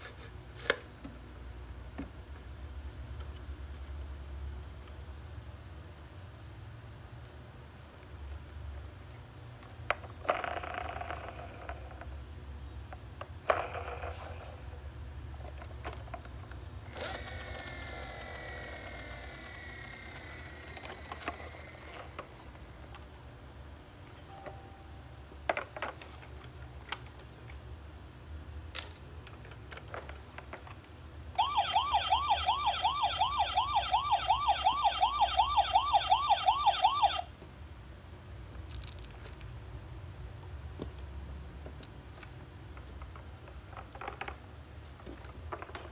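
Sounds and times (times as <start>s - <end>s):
toy electronic siren wailing: 16.9s - 22.3s, 31.4s - 37.3s
electronic toy sound: 16.9s - 22.4s, 31.4s - 37.2s.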